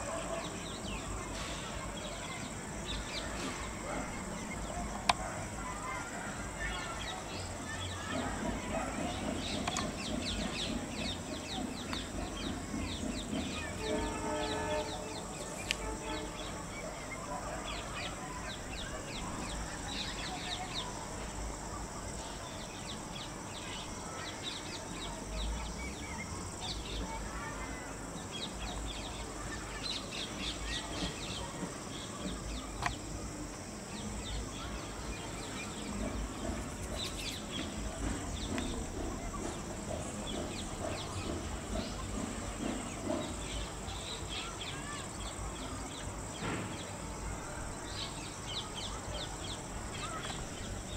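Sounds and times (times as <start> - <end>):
bird chirps and calls: 0.0 - 21.5, 33.9 - 50.9.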